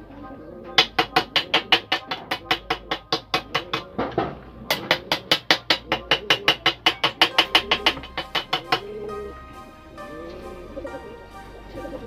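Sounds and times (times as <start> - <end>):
hammer tapping steel frame: 0.8 - 8.9.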